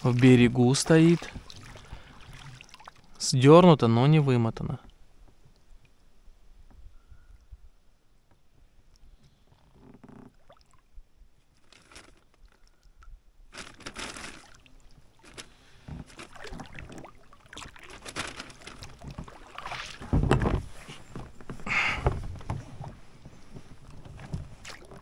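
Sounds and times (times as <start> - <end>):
oars splashing in water: 0.0 - 3.2, 13.5 - 25.0.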